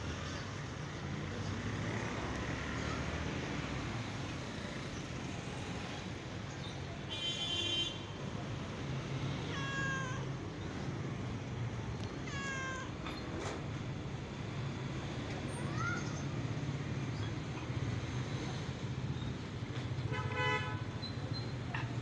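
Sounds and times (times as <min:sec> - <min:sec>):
cat meowing: 0:09.4 - 0:10.4, 0:12.0 - 0:13.2.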